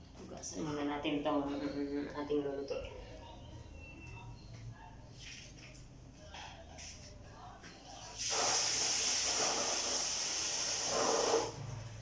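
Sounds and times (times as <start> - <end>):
water running from a tap: 8.2 - 11.6.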